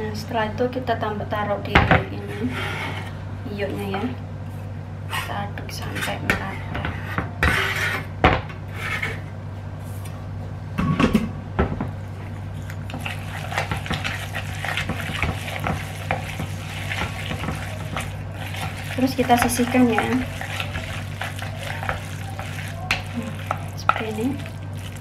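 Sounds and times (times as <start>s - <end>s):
knife scraping cutting board: 6.9s - 8.1s, 8.7s - 9.2s
chopsticks beating paste in bowl: 12.6s - 25.0s.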